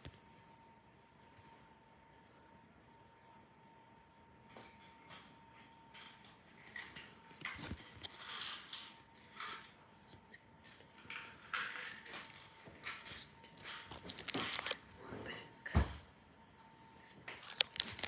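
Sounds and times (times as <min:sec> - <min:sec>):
cards and foil wrappers rustling: 0:06.6 - 0:09.8, 0:10.6 - 0:14.8, 0:17.3 - 0:18.0.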